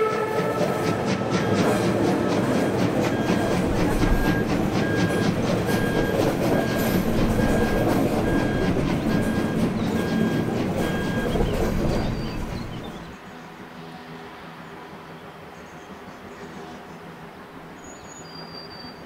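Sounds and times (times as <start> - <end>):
train clickety-clack: 0.0 - 13.2
train wheels rumbling on rails: 0.0 - 13.2.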